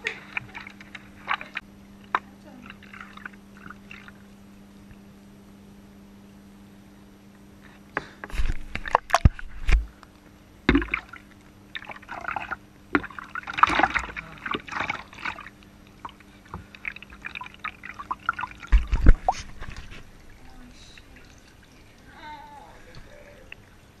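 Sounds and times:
bath water splashing: 0.0s - 4.2s, 10.7s - 24.0s
water dripping off puppy: 20.2s - 24.0s.

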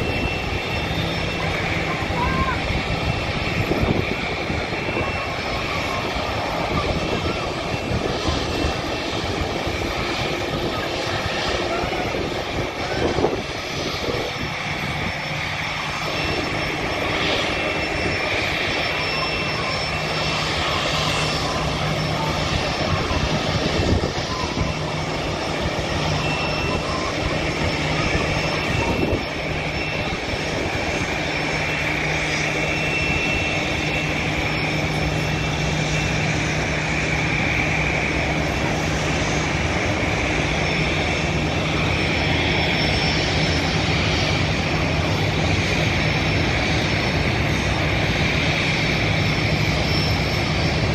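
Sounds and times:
jet engines idling: 0.0s - 50.9s.

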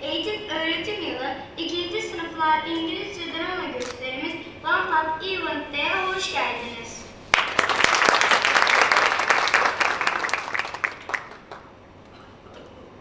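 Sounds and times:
audience applauding: 7.3s - 11.7s.

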